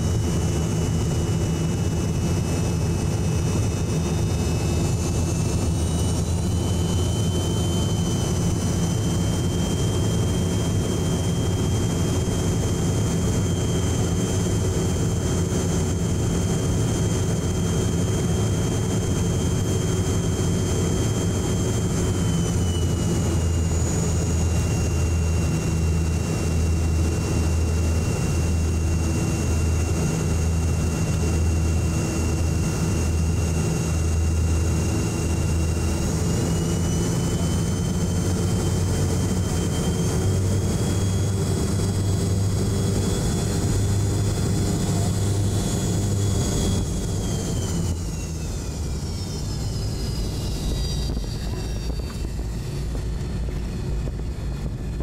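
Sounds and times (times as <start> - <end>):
jet engine whine: 0.0 - 55.0
low cabin rumble: 0.0 - 55.0.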